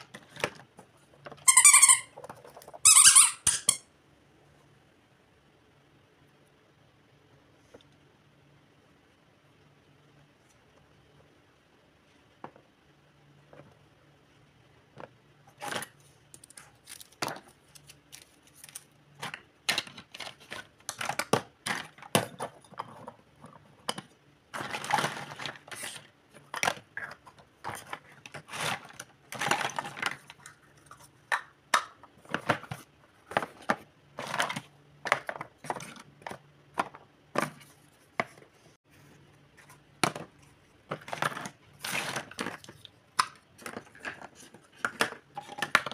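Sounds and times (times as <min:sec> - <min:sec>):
plastic toy pieces clattering: 0:15.6 - 0:37.5, 0:40.9 - 0:45.9.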